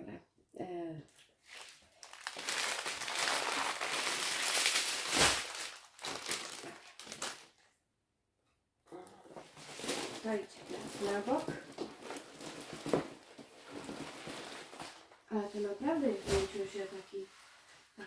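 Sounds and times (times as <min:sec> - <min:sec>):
plastic bags crinkling: 0:01.4 - 0:07.7, 0:09.5 - 0:16.6.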